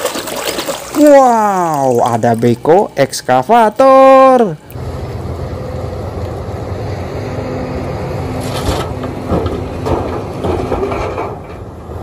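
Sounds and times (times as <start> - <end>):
faint steady hum: 0.7 - 8.4
excavator diesel engine running: 4.8 - 12.0.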